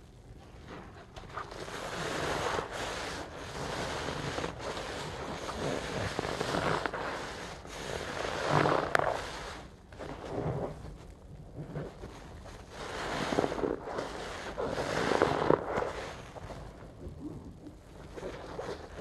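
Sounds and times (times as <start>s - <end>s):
sponge squelching in suds: 0.5s - 19.0s.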